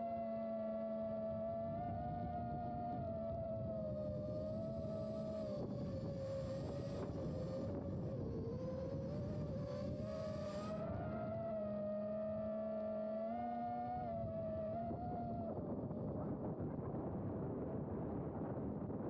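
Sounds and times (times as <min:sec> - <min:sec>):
quadcopter motors whining: 0:01.3 - 0:11.6.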